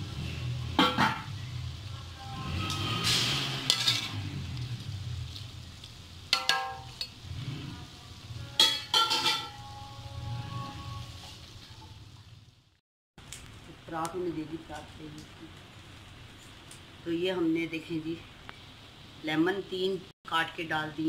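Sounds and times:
metal spoon scraping a pot: 2.6 - 4.2, 8.4 - 11.4.

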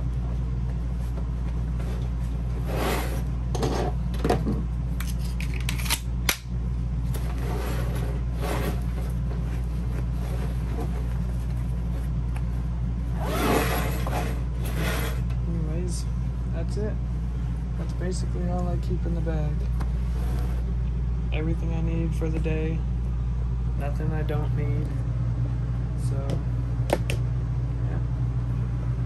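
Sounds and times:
steady low hum: 0.0 - 29.0
bag rustling and scraping: 7.2 - 12.2, 13.2 - 15.2.

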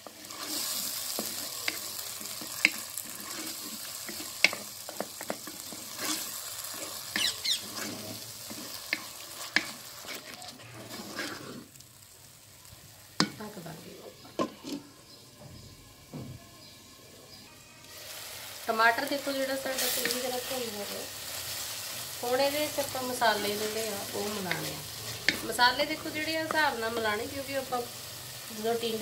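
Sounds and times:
wooden spatula scraping a pot: 0.0 - 11.8
food sizzling in hot oil: 0.0 - 14.6, 17.6 - 29.0.

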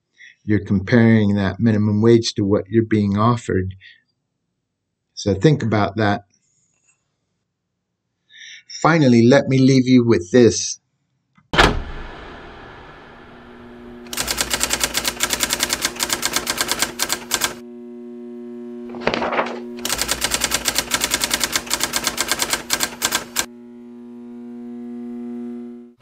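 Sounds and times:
short whoosh: 11.6 - 14.0
steady low drone: 11.6 - 14.1
typewriter keys clattering: 14.1 - 17.6, 19.8 - 23.5.

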